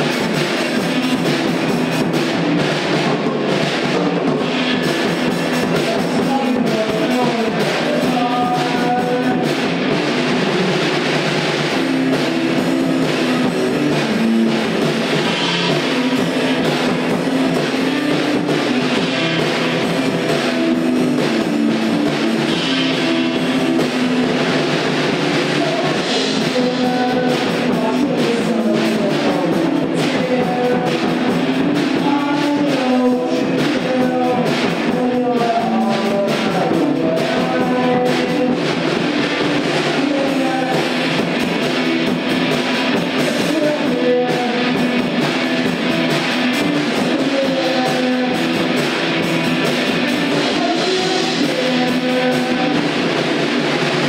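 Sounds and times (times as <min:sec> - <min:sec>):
drum kit: 0:00.0 - 0:54.0
guitar chords: 0:00.0 - 0:54.0
rock band playing: 0:00.0 - 0:54.0.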